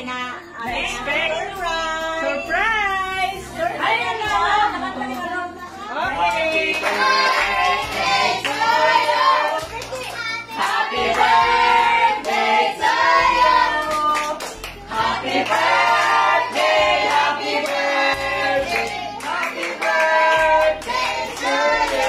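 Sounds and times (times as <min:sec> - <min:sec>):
group singing a celebration song: 0:00.0 - 0:22.0
hand clapping: 0:09.5 - 0:11.3, 0:13.8 - 0:14.8.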